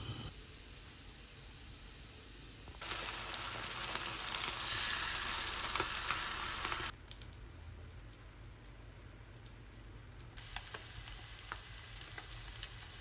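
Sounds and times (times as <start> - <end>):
food sizzling in hot oil: 2.8 - 7.0, 10.4 - 13.0
crackling pops: 2.8 - 13.0.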